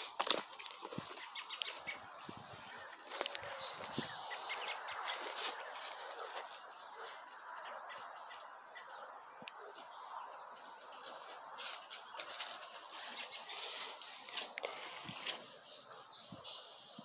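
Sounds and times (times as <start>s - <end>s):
birds chirping: 0.0s - 17.0s
horse tearing and chewing grass: 10.7s - 16.2s.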